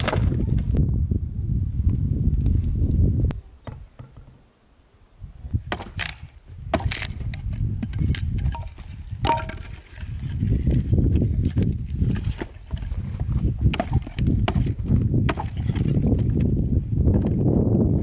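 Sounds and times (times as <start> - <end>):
sticks splitting and splintering: 0.0 - 0.7, 5.6 - 17.4
hatchet chopping wood: 5.7 - 10.0, 13.6 - 16.4.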